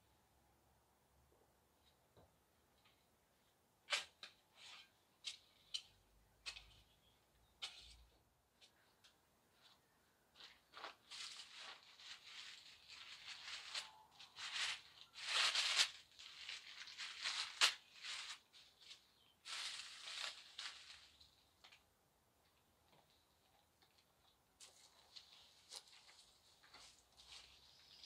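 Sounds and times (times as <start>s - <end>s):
dry leaves rustling and crackling: 10.7s - 21.4s.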